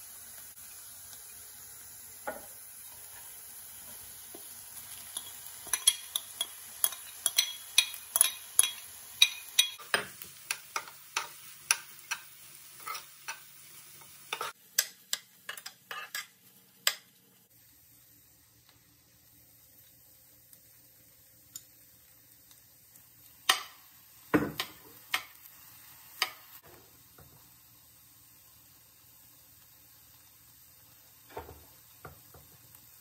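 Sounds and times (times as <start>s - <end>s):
faint sizzle: 0.0s - 33.0s
spoon scraping a pan: 2.3s - 17.0s.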